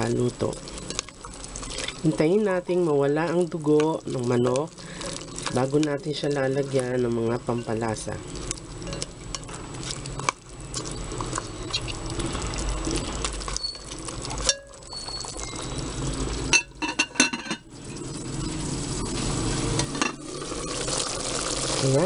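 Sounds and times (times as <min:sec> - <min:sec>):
chicken sizzling in a pot: 0:00.0 - 0:22.0.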